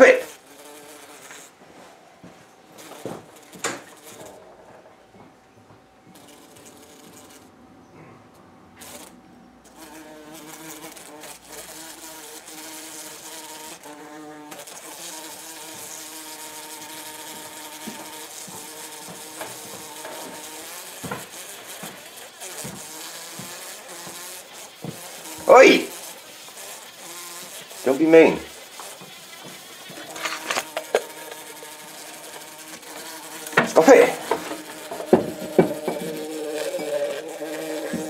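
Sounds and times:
bumblebee buzzing against window: 0.0s - 1.9s, 2.6s - 4.9s, 6.0s - 38.0s.

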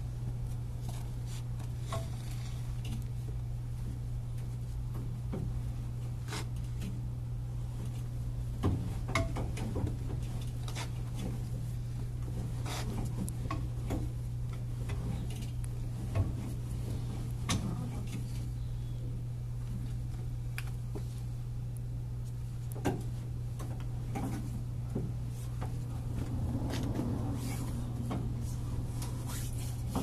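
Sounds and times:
low hum: 14.1s - 30.0s.

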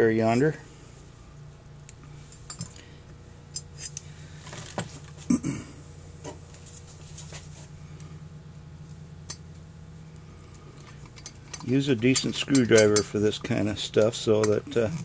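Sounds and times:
metallic clicks of small parts: 10.5s - 13.2s.

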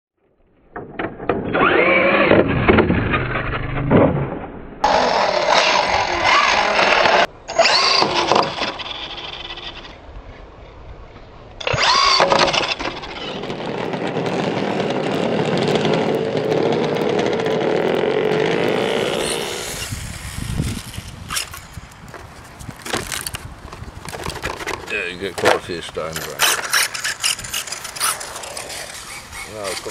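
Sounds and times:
electric motors whining: 1.4s - 3.5s, 4.8s - 10.0s, 11.6s - 21.8s, 26.2s - 29.9s.

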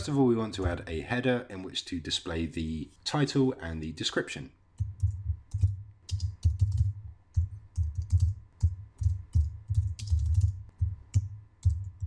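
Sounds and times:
typing on computer keyboard: 4.8s - 12.0s.

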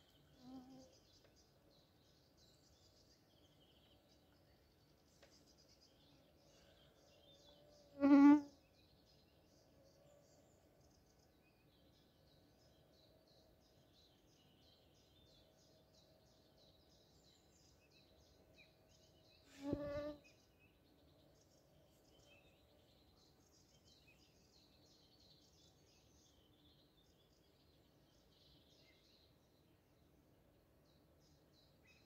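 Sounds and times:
faint birds chirping: 0.0s - 32.0s
flying insect buzzing: 8.0s - 8.5s, 19.5s - 20.2s.

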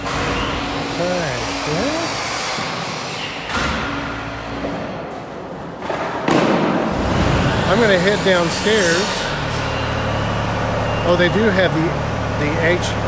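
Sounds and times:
power tools droning: 0.0s - 5.7s, 6.8s - 13.0s
loud burst of noise: 6.3s - 11.6s.

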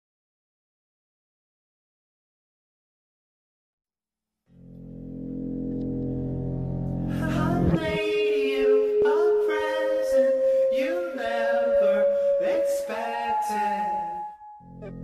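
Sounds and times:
low sustained drone: 4.6s - 15.0s
person singing long held notes: 7.1s - 15.0s.

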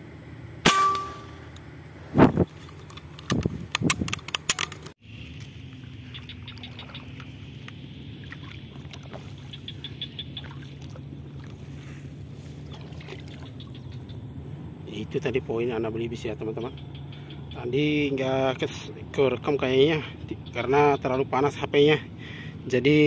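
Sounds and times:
steady low hum: 0.0s - 23.0s
sharp knocks and clicks: 2.9s - 5.0s
high ticking chirps: 5.8s - 11.3s, 13.4s - 14.8s, 16.2s - 18.4s.

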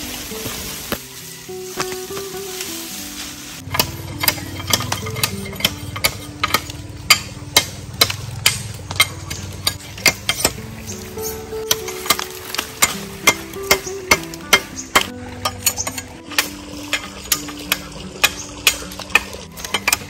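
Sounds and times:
soft background music: 0.0s - 20.0s
sharp chopping strikes: 3.6s - 10.6s, 11.6s - 20.0s.

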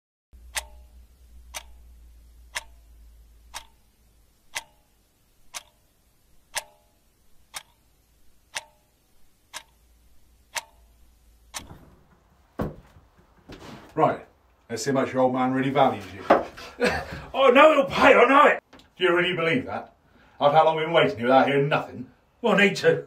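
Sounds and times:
wall clock ticking: 0.4s - 13.5s.

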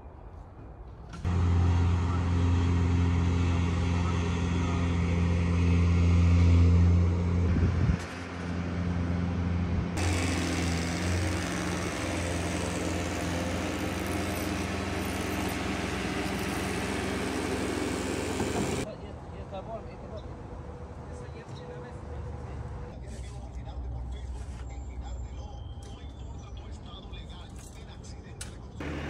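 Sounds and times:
engine running: 1.1s - 18.9s, 28.8s - 29.0s.

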